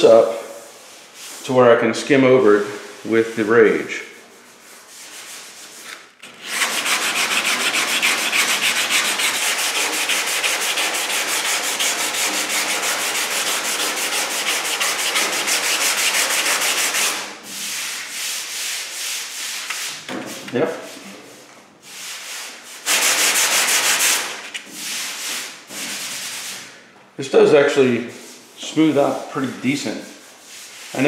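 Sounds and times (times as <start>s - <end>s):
palm rubbing over panel: 0.0s - 21.0s, 28.0s - 31.0s
sanding block on body filler: 2.6s - 20.0s, 21.9s - 26.6s, 29.8s - 31.0s.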